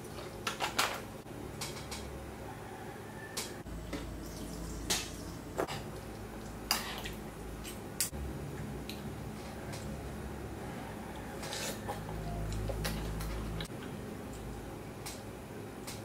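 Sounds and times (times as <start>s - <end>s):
low steady hum: 3.4s - 16.0s.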